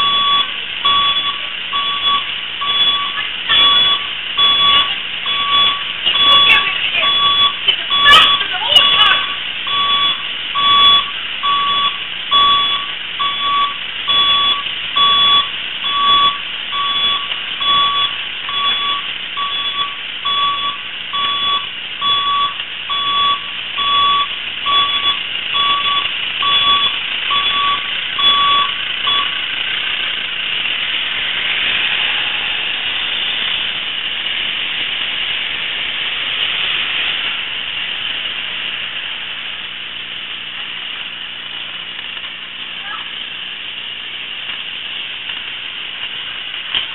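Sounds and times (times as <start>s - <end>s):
vehicle reversing beeper: 0.0s - 29.4s
vehicle running hiss: 0.0s - 46.9s.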